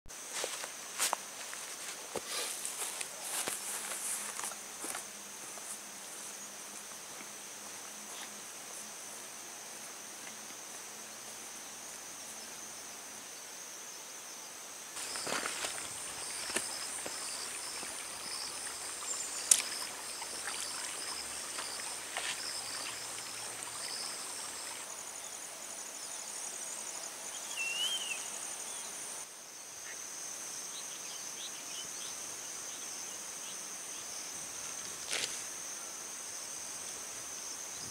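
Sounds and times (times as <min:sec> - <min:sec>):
insects chirring: 0:00.1 - 0:37.9
footsteps clicking on rocks: 0:15.0 - 0:17.9.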